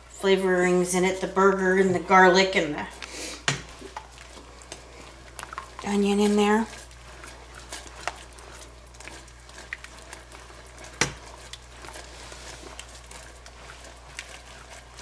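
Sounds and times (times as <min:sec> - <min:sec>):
gravy bubbling in a pan: 0:00.0 - 0:15.0.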